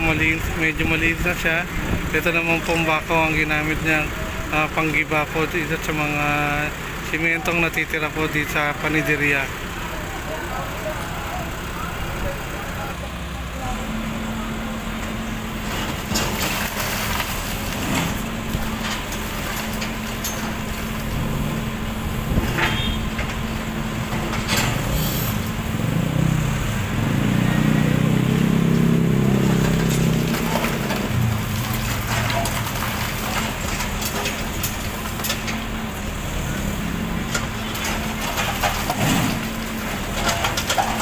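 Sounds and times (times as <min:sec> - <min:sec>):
diesel engine running: 0:00.0 - 0:41.0
concrete knocking and crunching: 0:29.3 - 0:35.7, 0:37.3 - 0:41.0.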